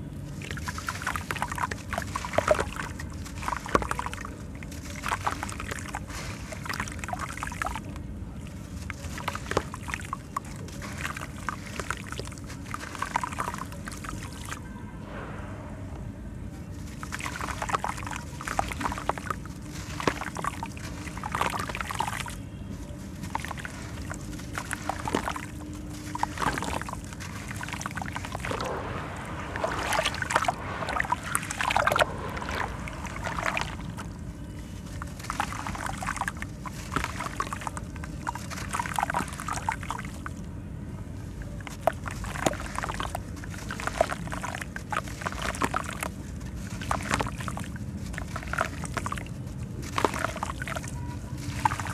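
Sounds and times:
wet cement sludge sloshing: 0.0s - 15.2s, 16.6s - 40.5s, 41.2s - 51.9s
grains trickling into water: 0.3s - 14.6s, 16.8s - 40.4s, 41.6s - 51.9s.

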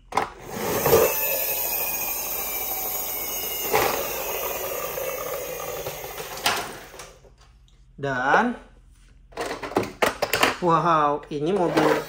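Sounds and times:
toy car whirring on tile floor: 0.4s - 7.2s.

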